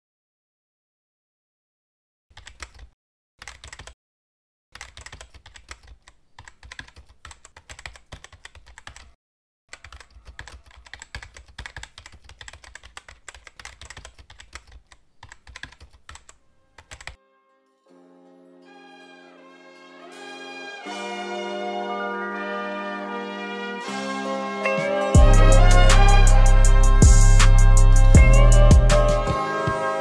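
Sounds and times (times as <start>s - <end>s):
rapid keyboard typing: 2.4s - 4.0s, 4.8s - 17.2s
brass music: 17.2s - 30.0s.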